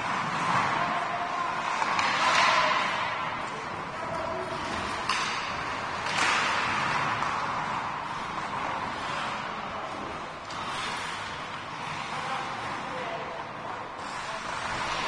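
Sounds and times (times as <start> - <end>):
sharp hockey clack: 1.6 - 9.5.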